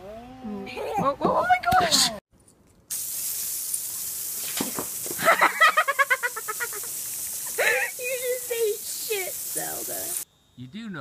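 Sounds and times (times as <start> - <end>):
garden hose spraying water: 2.9 - 10.3.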